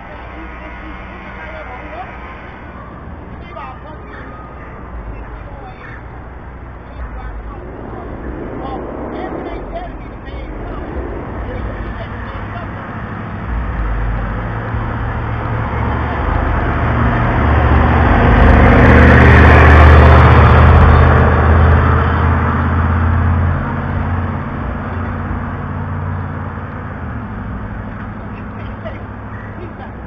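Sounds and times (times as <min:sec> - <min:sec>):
loud vehicle engine passing: 0:00.0 - 0:30.0.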